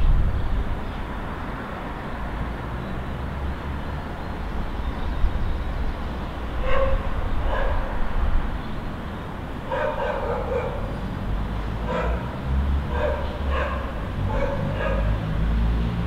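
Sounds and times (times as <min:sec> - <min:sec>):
distant city traffic rumble: 0:00.0 - 0:16.0
dog barking: 0:06.6 - 0:08.0, 0:09.7 - 0:10.9, 0:11.8 - 0:12.3, 0:12.9 - 0:15.2.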